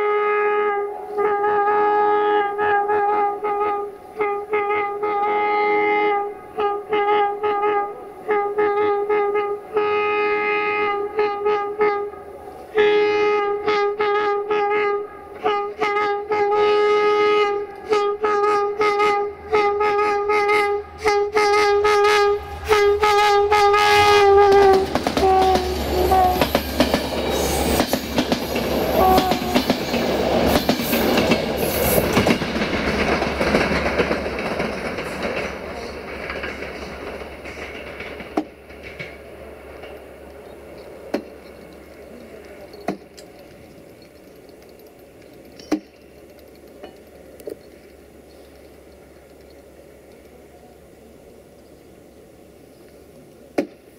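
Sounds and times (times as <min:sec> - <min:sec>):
locomotive air horn blasts: 0:00.0 - 0:27.8, 0:28.8 - 0:29.8
train rumbling past: 0:00.0 - 0:53.9
wheels clattering over rail joints: 0:14.5 - 0:50.6.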